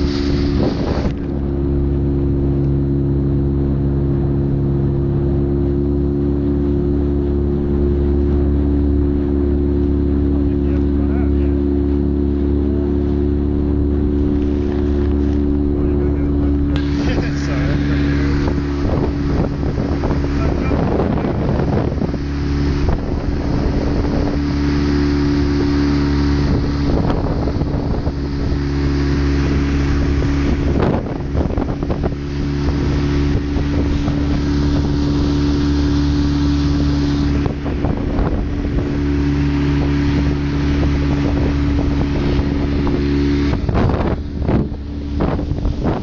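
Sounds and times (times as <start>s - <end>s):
boat engine running: 0.0s - 46.0s
wind noise on microphone: 0.0s - 46.0s.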